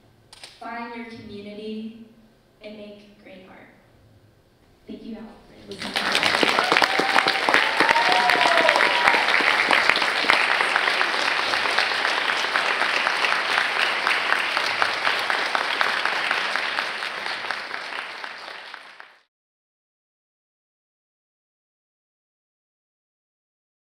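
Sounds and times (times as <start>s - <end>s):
audience applauding: 5.7s - 19.3s.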